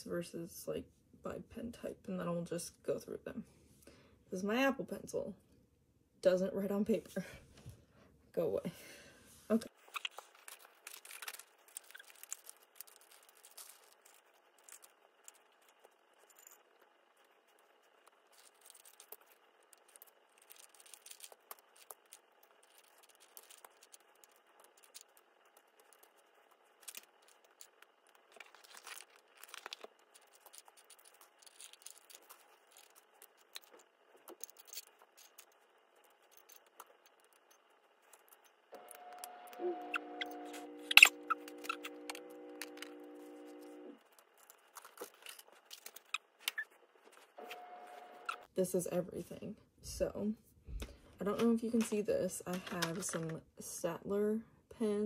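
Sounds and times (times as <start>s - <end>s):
plastic pens clicking and rattling: 9.8s - 38.6s, 44.0s - 47.2s, 51.3s - 53.4s
steady held tones: 37.5s - 44.0s, 47.4s - 48.5s.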